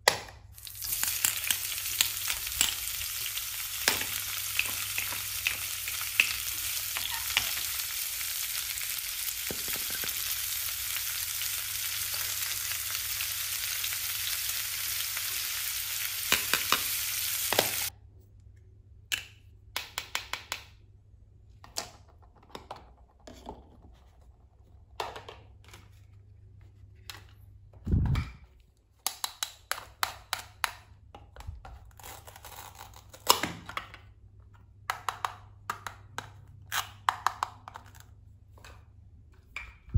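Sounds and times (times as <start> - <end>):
frying sizzle: 0.6 - 17.9.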